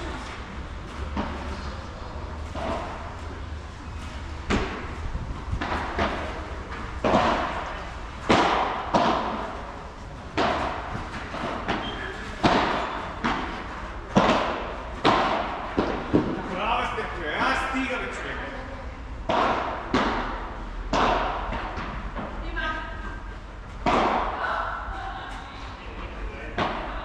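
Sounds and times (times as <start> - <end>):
ball struck with padel rackets: 1.0 - 1.7, 2.3 - 16.5, 19.2 - 22.4, 23.7 - 24.8, 26.5 - 27.0
ball bouncing on court: 5.6 - 9.7, 10.3 - 16.4.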